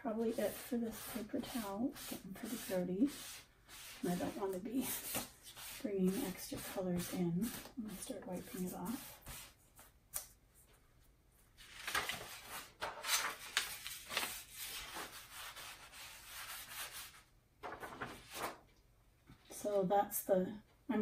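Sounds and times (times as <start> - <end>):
paper towel scrubbing sheet: 0.0 - 9.6, 11.8 - 17.2
papery rustle of sheet handled: 11.4 - 18.7.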